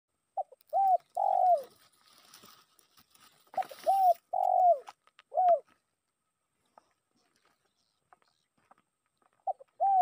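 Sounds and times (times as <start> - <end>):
dove cooing: 0.3 - 2.3, 3.4 - 5.8, 9.4 - 10.0.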